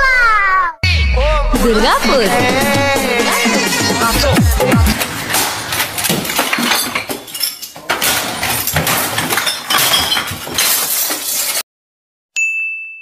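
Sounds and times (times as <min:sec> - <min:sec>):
crashing and clattering: 0:03.7 - 0:11.6
glass breaking: 0:04.3 - 0:11.6.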